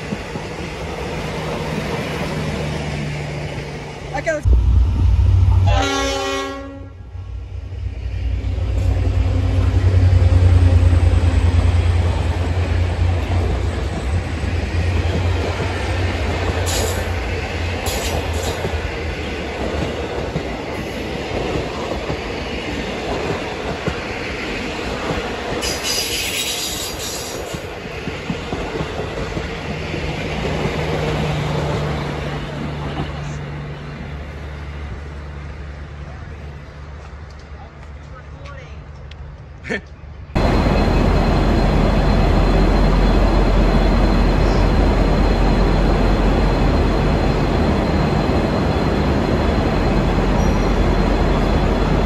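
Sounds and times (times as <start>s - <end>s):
diesel locomotive engines rumbling: 0.0s - 52.0s
train horn blast: 5.6s - 7.2s
wheel squeals: 49.8s - 51.7s.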